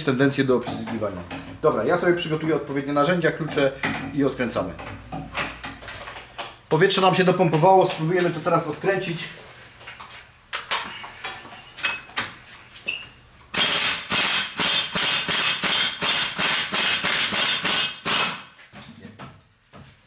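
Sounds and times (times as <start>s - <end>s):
pneumatic impact wrench hammering: 13.5s - 18.6s.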